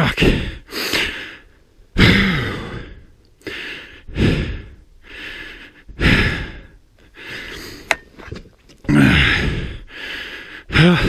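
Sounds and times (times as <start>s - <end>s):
person breathing hard: 0.2s - 8.0s, 9.0s - 11.0s.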